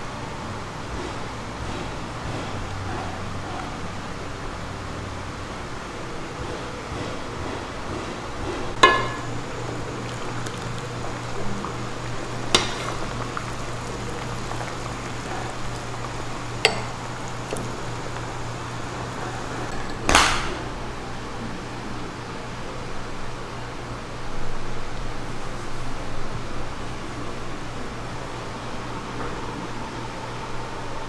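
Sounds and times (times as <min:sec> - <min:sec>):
low hum and hiss: 0:07.2 - 0:31.0
utensils clinking on pot and bowls: 0:08.8 - 0:18.4, 0:19.2 - 0:20.5.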